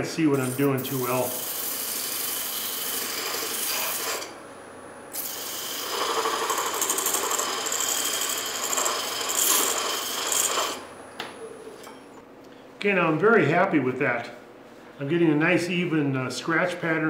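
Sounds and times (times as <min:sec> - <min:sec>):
sanding block rubbing spinning wood: 0:00.0 - 0:04.3, 0:05.2 - 0:10.8.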